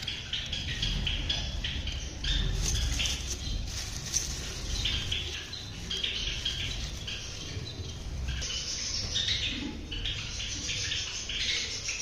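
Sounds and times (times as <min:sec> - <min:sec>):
straw rustling: 0:00.0 - 0:08.4
sparrows chirping: 0:00.0 - 0:12.0.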